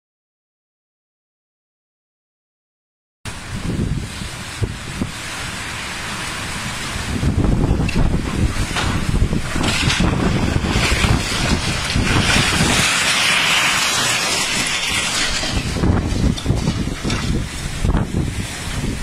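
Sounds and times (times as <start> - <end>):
wind buffeting microphone: 3.3 - 19.0.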